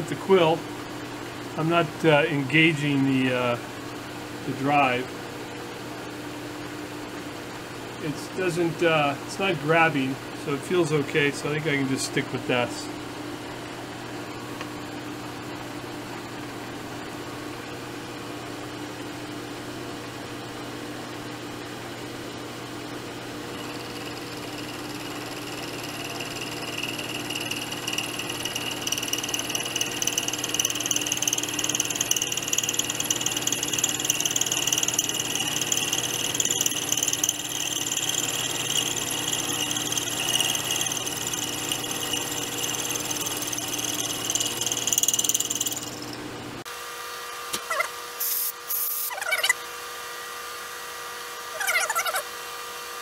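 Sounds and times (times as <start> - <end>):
milling machine cutting metal: 23.5 - 46.2.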